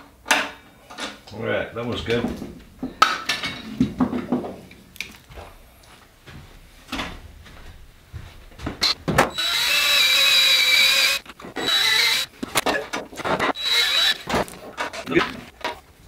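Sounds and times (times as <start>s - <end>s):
cordless drill running: 8.8s - 12.4s, 13.5s - 14.3s.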